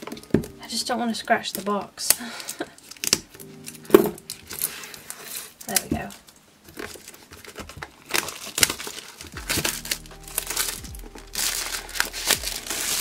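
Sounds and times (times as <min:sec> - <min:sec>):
plastic film crinkling: 0:00.0 - 0:13.0
cardboard box rustling and tapping: 0:05.7 - 0:13.0.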